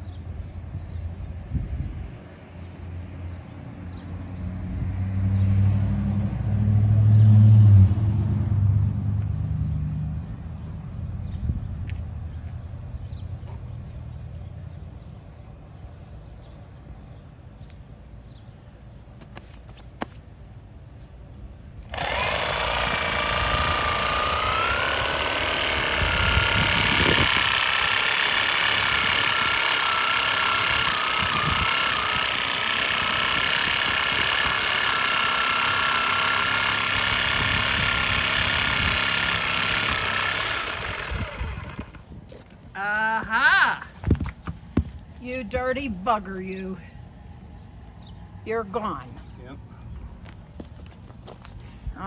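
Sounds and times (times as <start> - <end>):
reciprocating saw cutting roots: 21.8 - 42.1.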